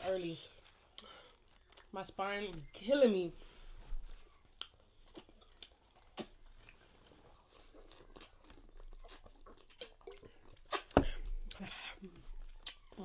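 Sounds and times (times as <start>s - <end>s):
chewing corn on the cob: 4.3s - 13.0s.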